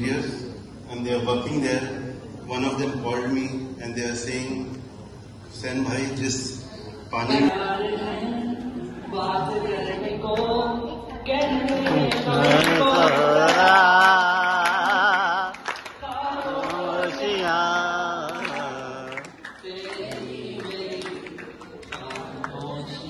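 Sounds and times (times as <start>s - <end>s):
man singing unaccompanied: 11.8s - 15.6s, 16.5s - 21.2s.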